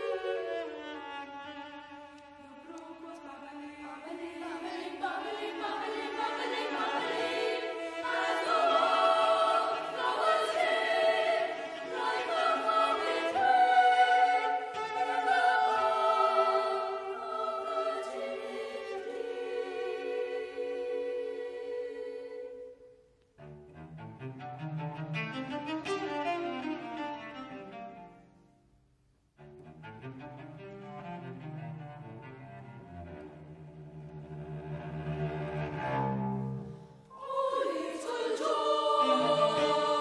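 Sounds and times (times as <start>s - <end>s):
cello: 0.0s - 28.5s, 29.4s - 40.0s
boys' choir singing: 2.6s - 22.6s, 37.1s - 40.0s.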